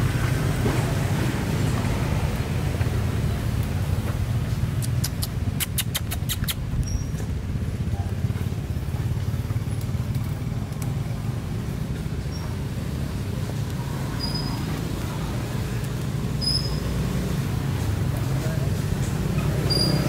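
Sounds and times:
sharp clicks: 4.7 - 6.9.

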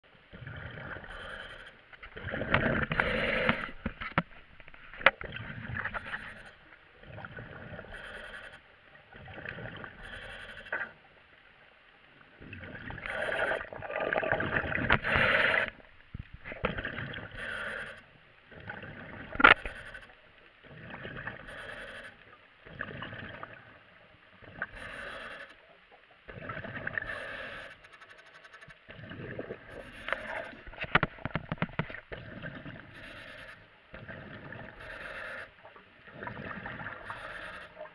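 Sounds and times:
bubbling exhale: 0.3 - 3.9, 12.4 - 15.9, 16.5 - 18.0, 28.9 - 31.1
diver breathing through regulator: 0.4 - 5.1, 5.9 - 6.6, 7.2 - 8.7, 9.8 - 11.0, 13.0 - 13.7, 14.9 - 15.9, 17.2 - 23.4, 24.6 - 25.7, 26.8 - 28.2, 28.9 - 31.1, 32.2 - 37.9.

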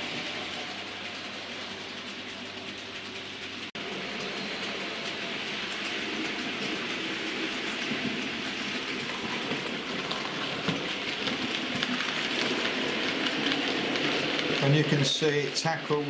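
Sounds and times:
model train wheels clattering on rails: 0.0 - 16.0.

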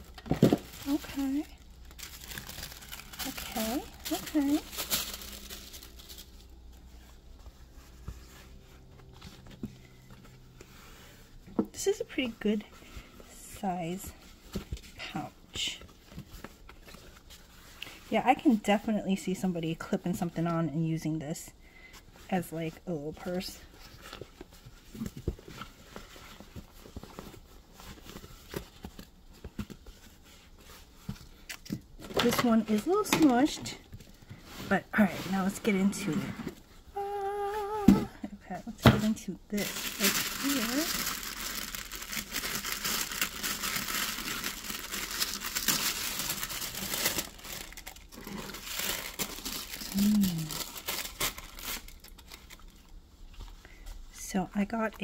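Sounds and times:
fabric rustling: 0.0 - 11.4
tissue paper crinkling: 0.0 - 19.0, 22.4 - 36.1, 39.0 - 53.0.

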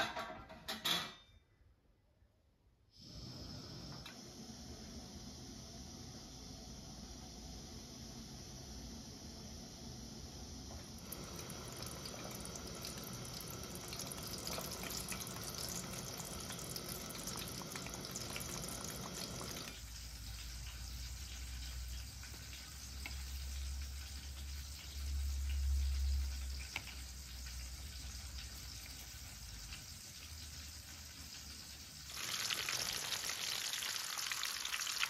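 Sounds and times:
eggplant sizzling in hot oil: 10.9 - 35.0.

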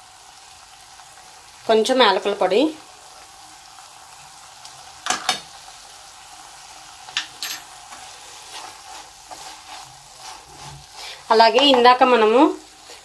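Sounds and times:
food sizzling in a pan: 0.0 - 13.0
spoon scraping a pan: 7.1 - 12.0.

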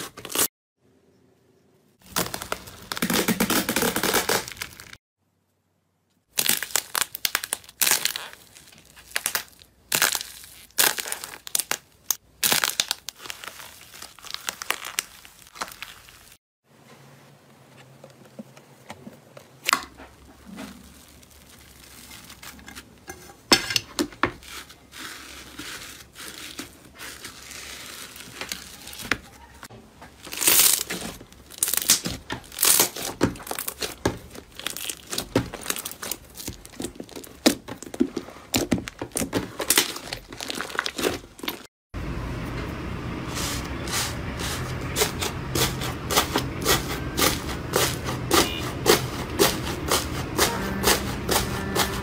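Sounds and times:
slime squishing and popping: 6.3 - 16.0.

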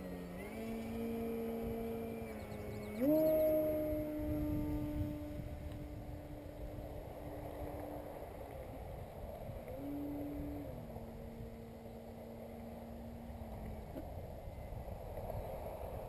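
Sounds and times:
model plane motor whine: 0.0 - 16.0.

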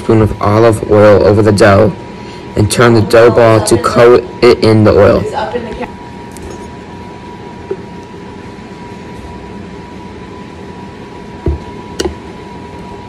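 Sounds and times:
kitchen room hum: 0.0 - 13.0
knock: 11.4 - 12.1.

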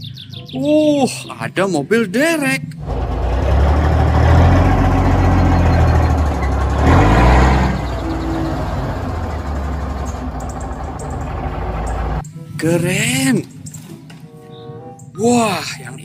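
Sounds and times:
diesel truck engine rumbling: 2.7 - 12.3.

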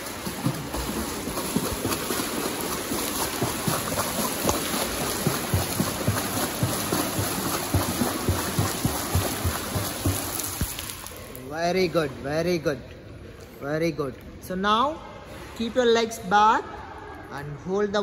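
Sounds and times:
flutter kick splashing in pool: 0.0 - 11.2.

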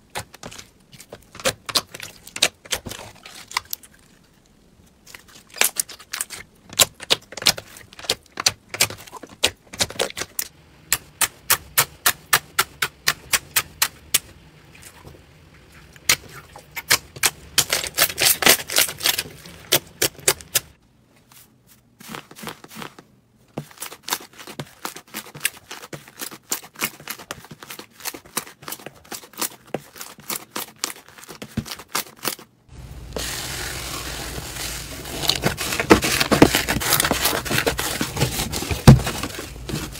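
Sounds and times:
slime fizzing crackle: 32.7 - 37.9.

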